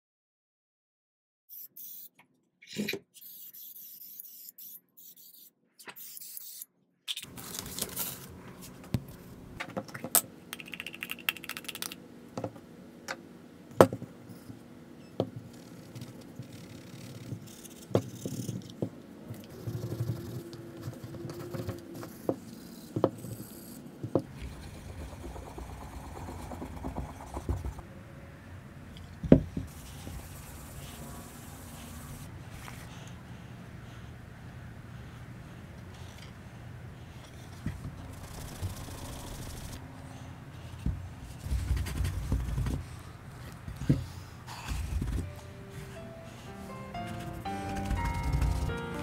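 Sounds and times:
rag rubbing wood: 24.2 - 27.8, 46.9 - 49.0.

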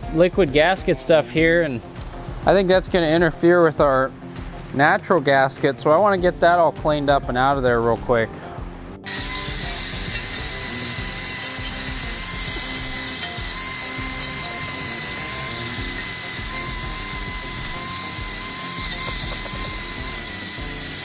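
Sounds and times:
drill motor whine: 9.1 - 21.0
wire brush scratching metal: 9.1 - 21.0.

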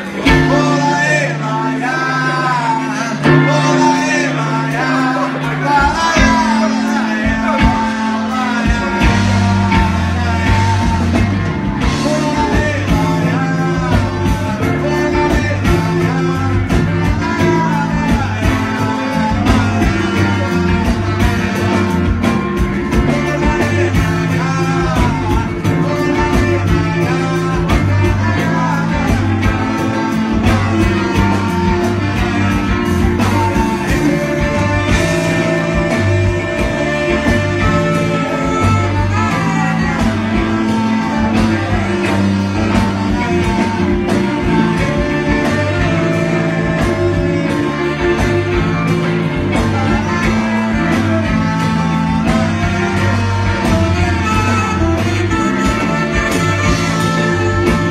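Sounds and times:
drums: 0.0 - 57.9
electric guitar: 0.0 - 57.9
repeating bass line: 0.0 - 57.9
saxophones: 0.0 - 57.9.

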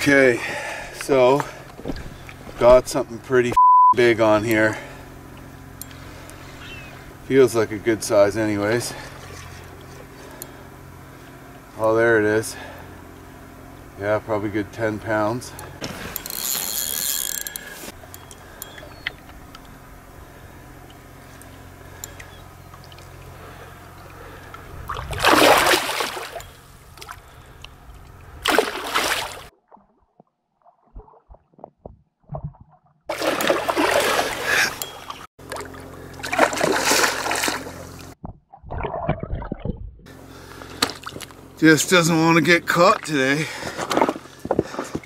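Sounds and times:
fish thrashing and splashing: 24.9 - 26.4, 28.4 - 31.7, 32.3 - 39.9.

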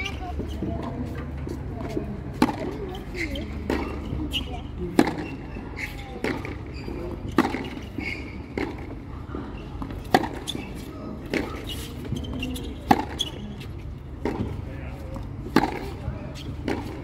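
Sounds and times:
tennis ball struck by rackets: 1.8 - 2.8, 4.9 - 5.4, 6.2 - 6.6, 7.3 - 7.9, 9.8 - 11.9, 12.8 - 13.3, 14.2 - 14.6, 15.5 - 16.0, 16.6 - 17.0
tennis ball bouncing: 1.8 - 9.0, 9.8 - 13.5, 14.2 - 14.6, 15.4 - 17.0.

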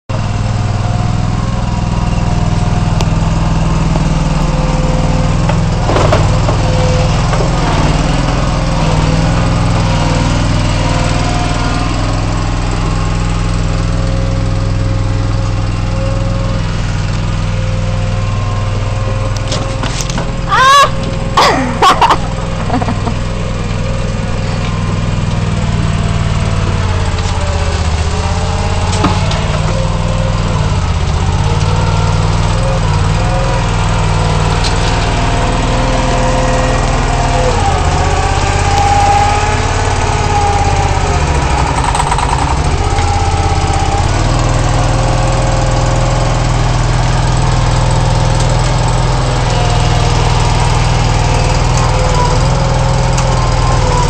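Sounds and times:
loader engine with whine: 0.1 - 54.0
high-pitched squeals: 20.4 - 21.3.

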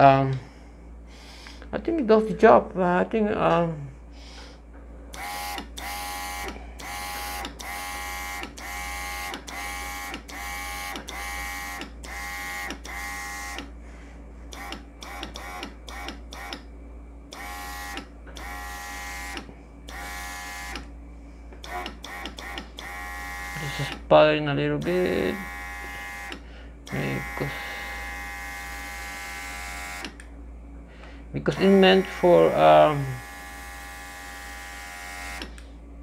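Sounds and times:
airbrush compressor motor whine: 5.2 - 13.8, 14.4 - 16.7, 17.3 - 20.9, 21.5 - 24.1, 24.8 - 30.2, 31.4 - 35.8.

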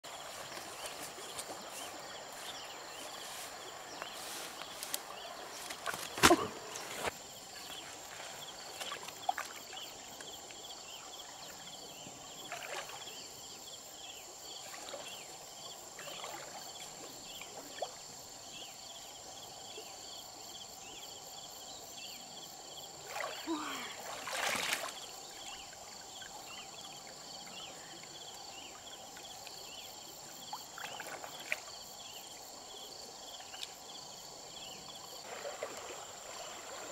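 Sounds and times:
splashing and rustling: 0.0 - 10.3, 23.0 - 25.2, 35.2 - 36.9
water sloshing around wading legs: 0.0 - 10.6, 12.4 - 13.2, 23.1 - 26.5, 30.5 - 31.7, 35.2 - 36.9
insects droning: 0.0 - 36.9.

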